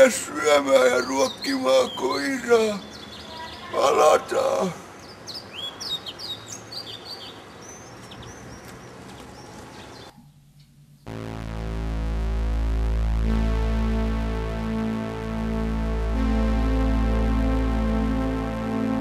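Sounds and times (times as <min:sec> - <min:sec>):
small birds chirping: 0:00.0 - 0:10.7
synthesizer music with low bass: 0:10.1 - 0:19.0.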